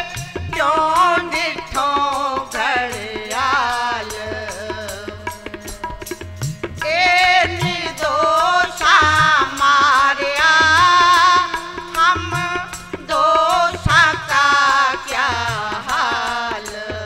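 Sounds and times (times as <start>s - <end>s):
person singing: 0.0s - 6.2s, 6.8s - 17.0s
harmonium: 0.0s - 17.0s
tabla drumming: 0.0s - 17.0s.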